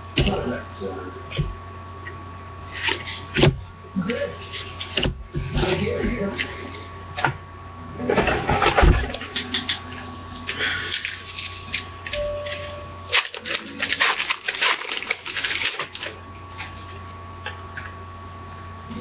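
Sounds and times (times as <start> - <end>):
steady hum: 0.0 - 19.0
card wrappers rustling and clicking: 9.2 - 17.2.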